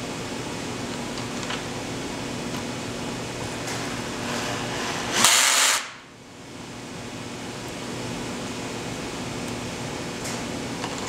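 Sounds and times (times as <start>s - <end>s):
workshop machinery humming: 0.0s - 11.0s
loud burst of hiss: 5.0s - 6.1s.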